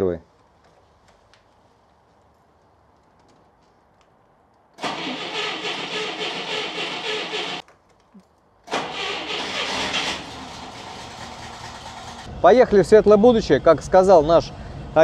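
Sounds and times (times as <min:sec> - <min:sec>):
car engine idling: 0:04.8 - 0:07.6, 0:08.7 - 0:12.3
starter motor cranking: 0:04.8 - 0:07.6, 0:08.7 - 0:12.3.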